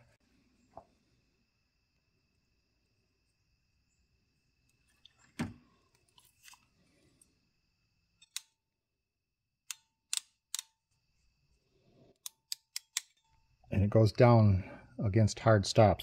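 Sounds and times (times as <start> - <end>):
crimping tool ratchet clicks: 12.2 - 13.2.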